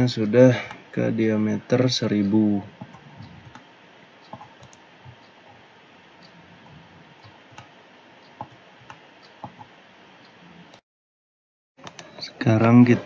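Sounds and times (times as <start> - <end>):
faint steady hiss: 0.0 - 10.8
computer mouse clicks: 2.8 - 5.3, 6.2 - 9.7.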